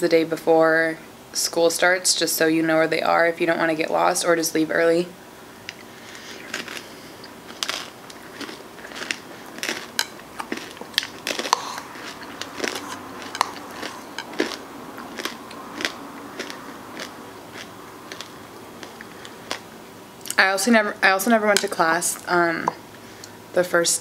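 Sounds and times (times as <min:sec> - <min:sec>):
crunchy chewing: 0:05.7 - 0:20.4.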